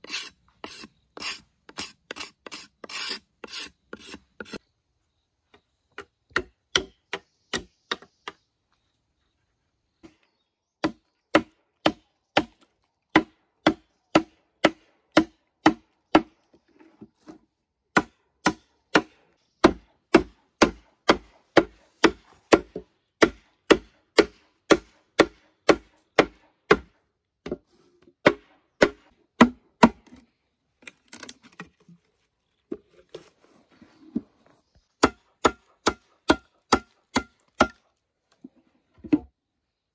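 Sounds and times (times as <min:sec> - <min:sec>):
blade chopping bamboo: 0:17.9 - 0:26.9, 0:28.2 - 0:30.2, 0:35.0 - 0:37.8.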